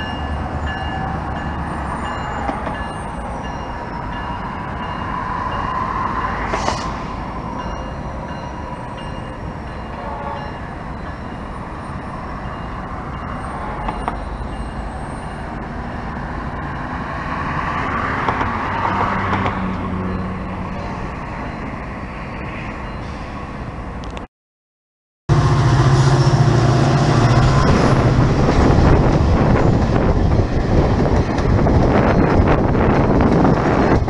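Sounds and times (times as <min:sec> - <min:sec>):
rail yard: 0:00.0 - 0:24.3, 0:25.3 - 0:34.0
rumble of road traffic: 0:00.0 - 0:24.3, 0:25.3 - 0:34.0
vehicles passing close: 0:12.5 - 0:24.3.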